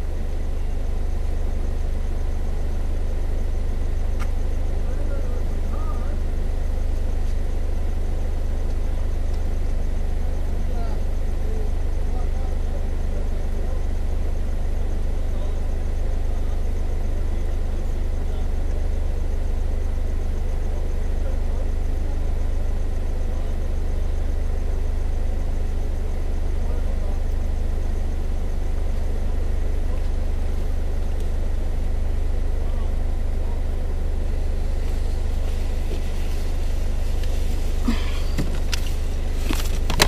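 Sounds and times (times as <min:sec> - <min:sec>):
faint thin steady whine: 0:00.0 - 0:40.0
jet engine cabin drone: 0:32.6 - 0:40.0.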